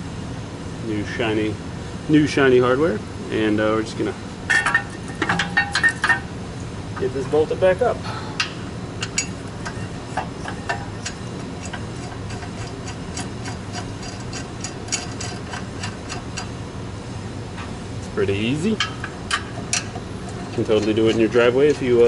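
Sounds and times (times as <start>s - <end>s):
hand ratchet clicking: 8.4s - 16.5s, 18.8s - 22.0s.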